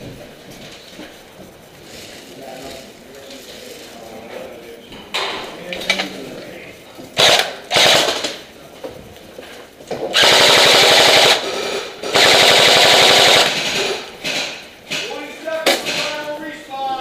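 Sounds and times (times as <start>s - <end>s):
airsoft gun firing bursts: 7.2s - 8.4s, 10.1s - 14.6s.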